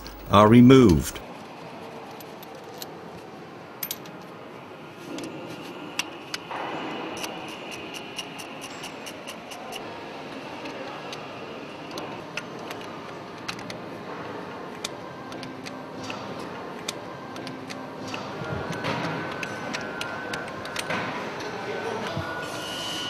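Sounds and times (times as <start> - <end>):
workshop background noise: 0.0 - 1.2.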